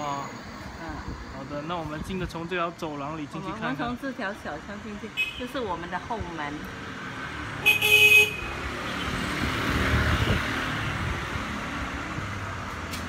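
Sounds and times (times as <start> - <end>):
vehicle passing: 5.8 - 13.0
vehicle horn honk: 7.6 - 8.6.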